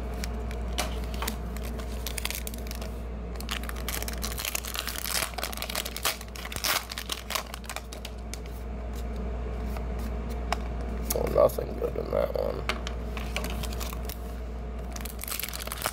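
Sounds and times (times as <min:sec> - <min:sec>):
foil wrapper crinkling and tearing: 0:00.1 - 0:08.5, 0:13.2 - 0:14.2, 0:14.8 - 0:15.9.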